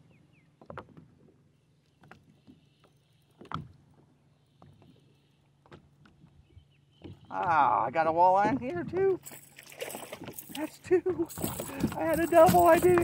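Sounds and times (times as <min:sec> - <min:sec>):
gear knocking and rattling: 0:11.3 - 0:13.0.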